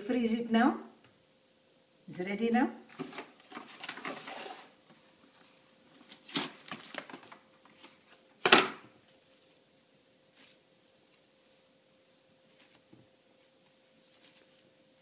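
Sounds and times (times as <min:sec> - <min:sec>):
plastic cling wrap crinkling: 0:02.9 - 0:04.9, 0:05.9 - 0:08.3, 0:10.2 - 0:15.0.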